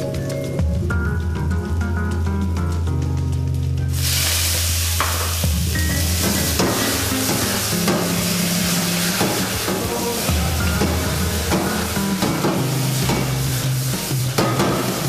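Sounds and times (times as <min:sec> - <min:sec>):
loud sizzle in hot oil: 0:03.9 - 0:15.0.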